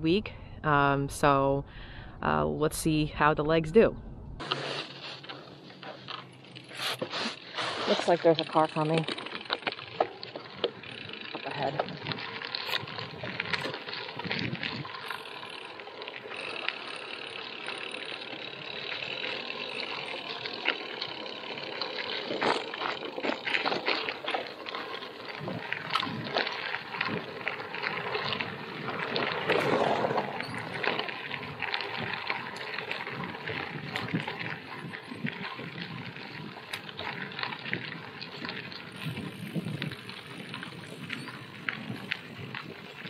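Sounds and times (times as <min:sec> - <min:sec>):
tyres crunching over gravel: 0:04.4 - 0:43.0
small clicks and rattles: 0:07.9 - 0:43.0
wind buffeting microphone: 0:10.5 - 0:15.1, 0:24.7 - 0:43.0.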